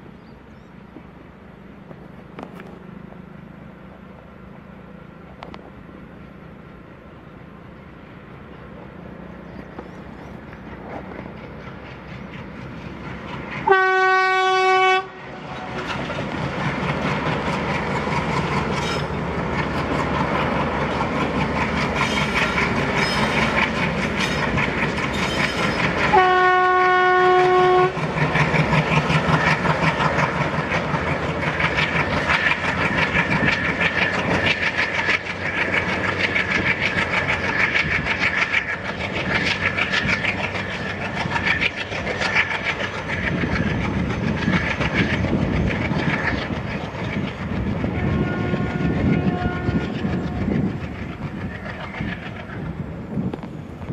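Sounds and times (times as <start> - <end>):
diesel locomotive engine chugging: 0.0 - 53.9
locomotive horn: 13.6 - 15.9, 26.0 - 28.0, 47.9 - 50.1
train coaches clattering over rail joints: 15.5 - 26.3.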